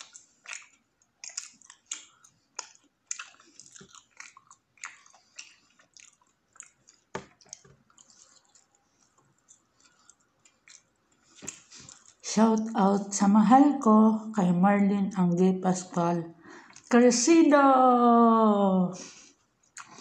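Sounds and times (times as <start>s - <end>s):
chewing with wet smacks: 0.0s - 12.8s, 19.6s - 20.0s.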